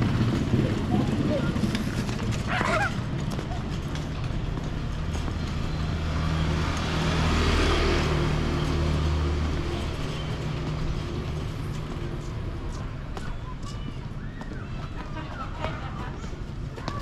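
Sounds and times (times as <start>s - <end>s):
tyre noise: 0.0s - 6.7s
vehicle engine hum: 0.0s - 17.0s.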